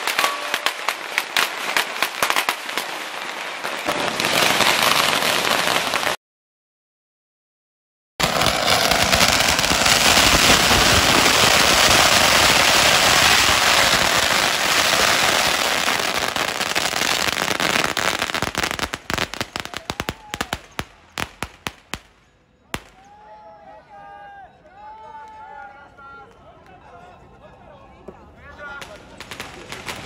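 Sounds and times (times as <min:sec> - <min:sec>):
firecrackers banging: 0:00.0 - 0:06.2, 0:08.2 - 0:23.1, 0:28.7 - 0:30.0.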